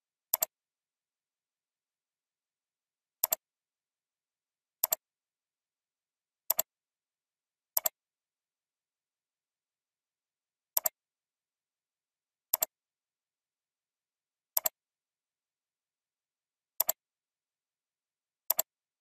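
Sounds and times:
computer mouse clicking: 0:00.3 - 0:00.5, 0:03.2 - 0:03.4, 0:04.8 - 0:05.0, 0:07.8 - 0:08.0, 0:10.8 - 0:11.0, 0:12.5 - 0:12.7, 0:14.5 - 0:14.8, 0:16.8 - 0:17.0, 0:18.5 - 0:18.7.

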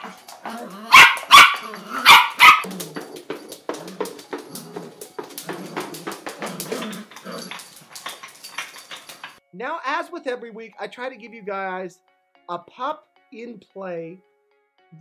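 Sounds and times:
toy clicking and clattering: 0:00.0 - 0:02.0, 0:02.6 - 0:09.4
puppy barking: 0:00.0 - 0:03.0.

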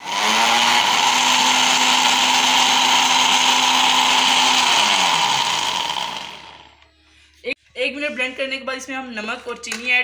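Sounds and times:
blender motor running: 0:00.0 - 0:06.8.

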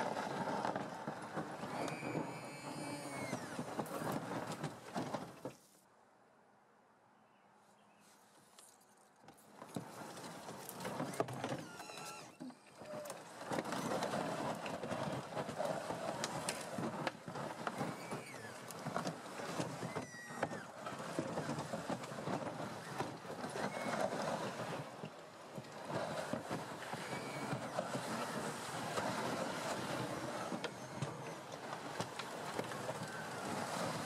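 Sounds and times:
branches scraping and snapping: 0:12.9 - 0:25.0
tracks crunching over snow: 0:12.9 - 0:34.0.

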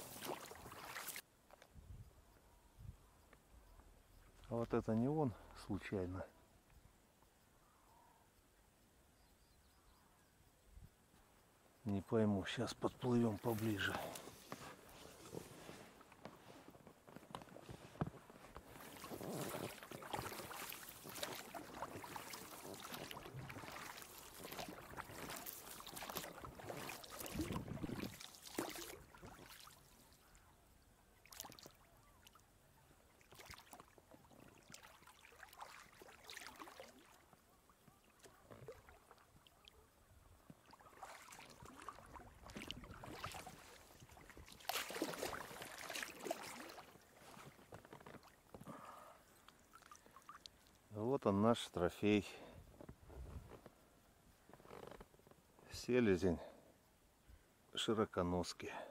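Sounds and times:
oars rowing through water: 0:00.0 - 0:01.2, 0:13.1 - 0:50.9.

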